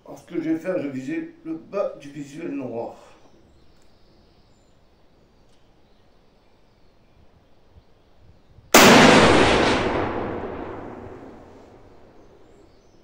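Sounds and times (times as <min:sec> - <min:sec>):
rifle shot echoing: 0:08.8 - 0:12.6.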